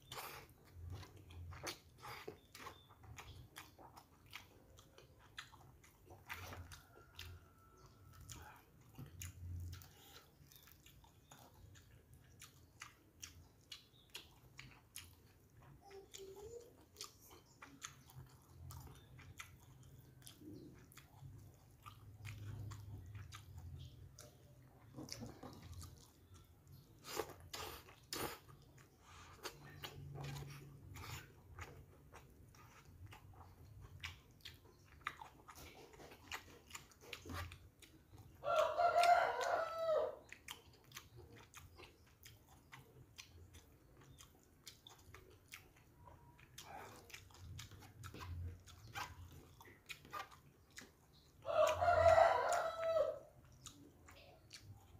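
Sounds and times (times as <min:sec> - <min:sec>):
person chewing food: 0:00.0 - 0:54.9
rooster crowing: 0:38.4 - 0:40.2, 0:51.4 - 0:53.3.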